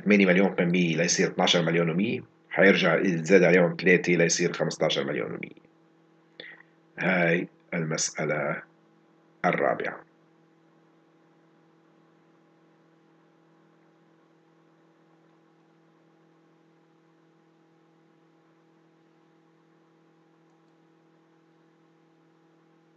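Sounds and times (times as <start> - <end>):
faint electrical hum: 0.0 - 22.9.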